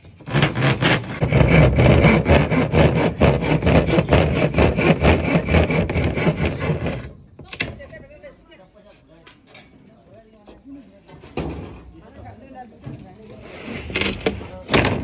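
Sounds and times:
hand saw cutting plywood: 0:00.0 - 0:07.2.

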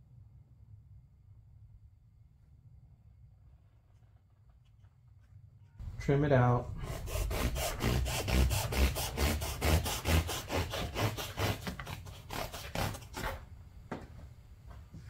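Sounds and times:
blade sawing foam: 0:05.8 - 0:13.4.

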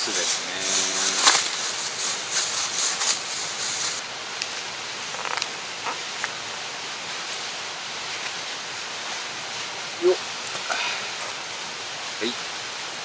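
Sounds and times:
plastic crinkling: 0:00.0 - 0:04.0.

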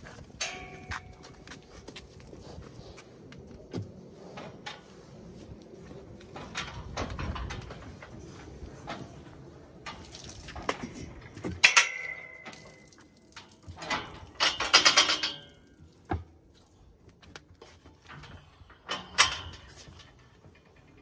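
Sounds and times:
metal chute rattling clanks: 0:11.2 - 0:12.9, 0:13.8 - 0:15.8, 0:18.2 - 0:21.0.

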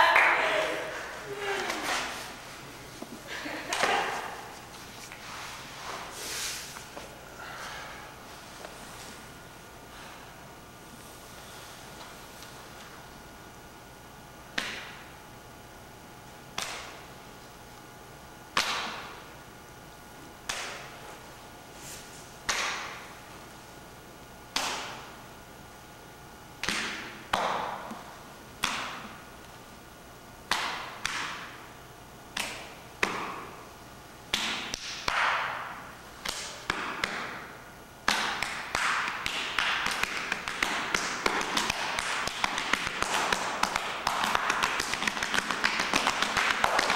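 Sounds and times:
open-hand slaps on body: 0:14.5 - 0:15.0, 0:16.5 - 0:17.0, 0:18.6 - 0:19.1, 0:20.4 - 0:20.9, 0:22.5 - 0:23.0, 0:24.5 - 0:25.1, 0:26.6 - 0:27.9, 0:28.6 - 0:29.2, 0:30.5 - 0:31.5, 0:32.3 - 0:33.5, 0:34.3 - 0:37.4, 0:38.0 - 0:46.9.

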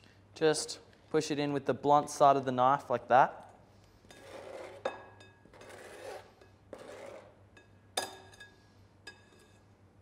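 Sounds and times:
knife scraping chopping board: 0:04.1 - 0:07.4.

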